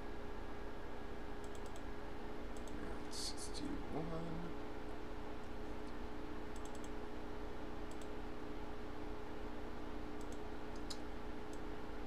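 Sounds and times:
electrical hum: 0.0s - 12.0s
computer clicks: 1.4s - 1.9s, 2.5s - 2.8s, 6.5s - 7.0s, 7.9s - 8.1s, 10.2s - 11.6s.

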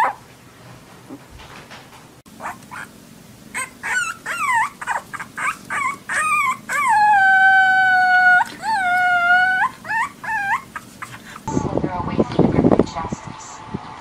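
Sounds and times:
puppy howling: 0.0s - 0.2s, 2.4s - 2.9s, 3.5s - 11.5s
puppy yipping: 2.4s - 2.9s, 3.5s - 11.4s.

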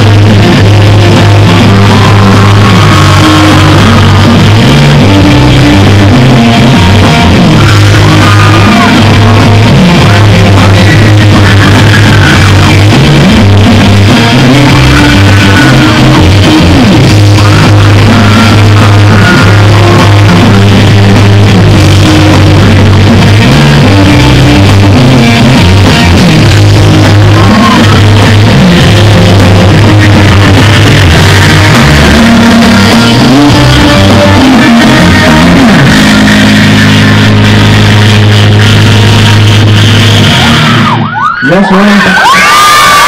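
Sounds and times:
loud live rock music: 0.0s - 43.0s.

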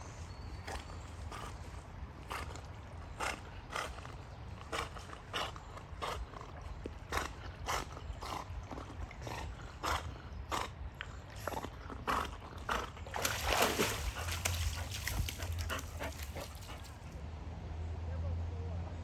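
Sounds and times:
dog huffing breaths: 0.6s - 17.2s
paddling splashes: 13.0s - 16.8s.

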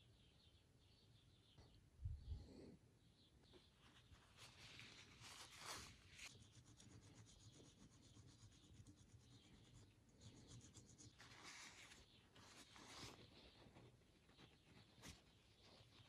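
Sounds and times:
fine rapid scratching: 3.7s - 16.0s.

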